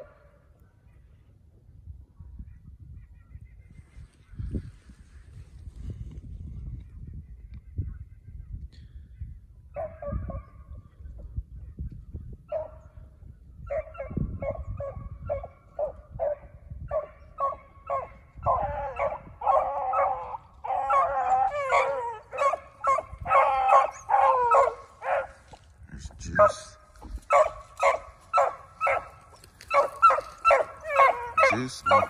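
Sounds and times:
hounds baying: 0:13.7 - 0:25.6, 0:26.3 - 0:32.0.

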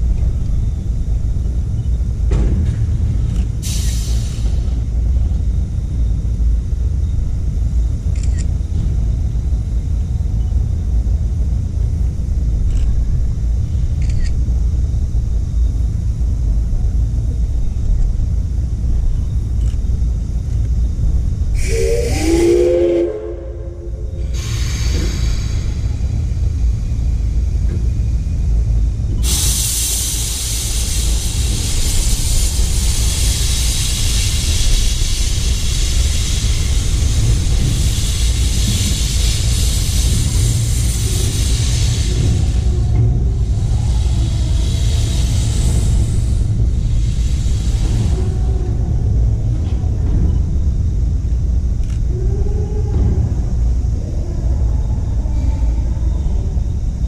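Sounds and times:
low rumble: 0:00.0 - 0:57.0
steam hissing: 0:03.6 - 0:04.8, 0:21.6 - 0:26.6, 0:29.2 - 0:49.3
steam whistle chord: 0:21.6 - 0:24.2.

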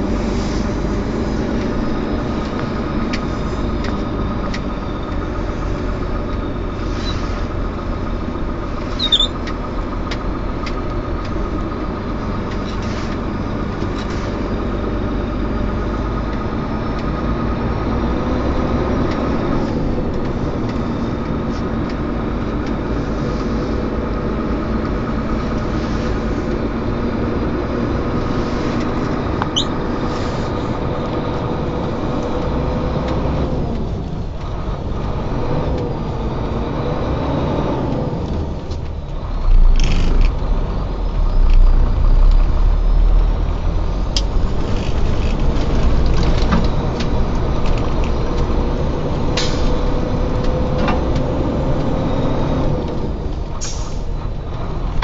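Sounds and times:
vehicle engine and road noise: 0:00.0 - 0:55.0
high squeak: 0:08.9 - 0:09.4, 0:29.5 - 0:29.8.

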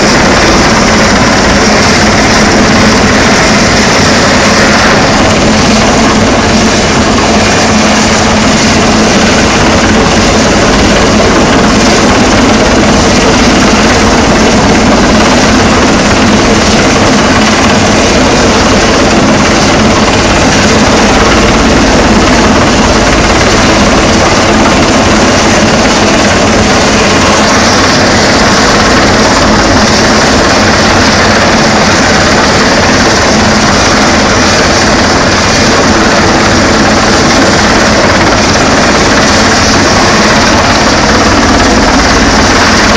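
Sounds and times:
helicopter hovering overhead: 0:00.0 - 0:42.9.

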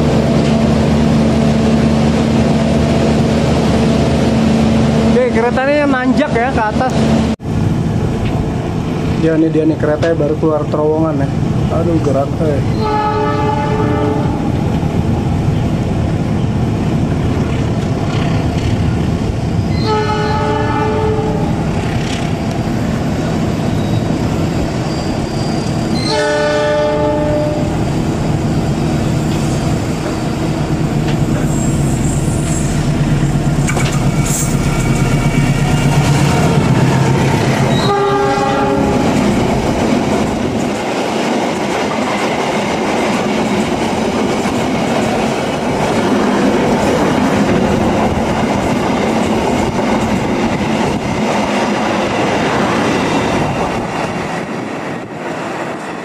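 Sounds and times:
train air horn blasts: 0:12.8 - 0:14.5, 0:19.8 - 0:21.6, 0:26.0 - 0:27.7, 0:37.7 - 0:39.1
locomotive engine rumbling: 0:14.3 - 0:55.2.

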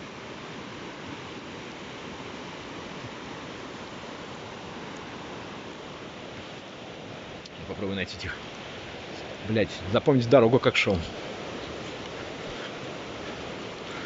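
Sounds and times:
choppy water: 0:00.0 - 0:14.0
wind buffeting microphone: 0:07.5 - 0:14.0.

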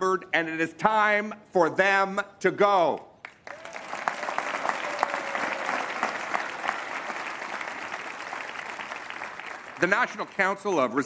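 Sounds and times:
large audience applauding: 0:03.2 - 0:10.6.

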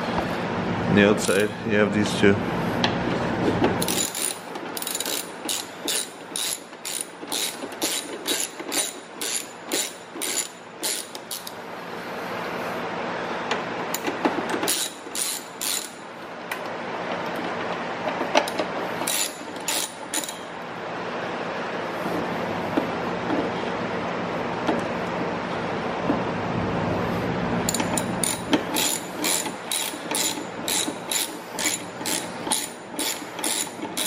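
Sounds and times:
ratcheting screwdriver clicking: 0:03.8 - 0:11.6, 0:14.0 - 0:16.0, 0:18.4 - 0:20.4, 0:27.7 - 0:34.0.

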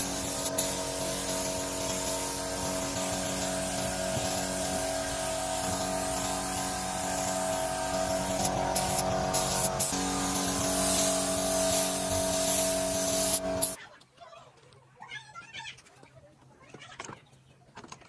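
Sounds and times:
spray gun hissing: 0:00.0 - 0:13.8.

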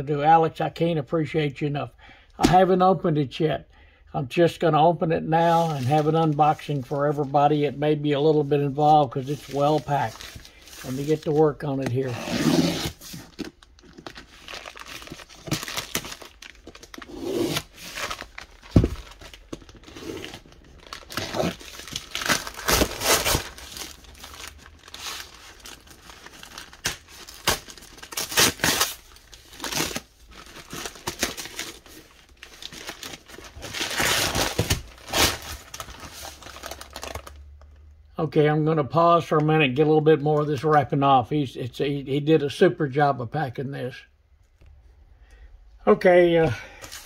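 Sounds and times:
paper tearing and crumpling: 0:08.8 - 0:37.3.

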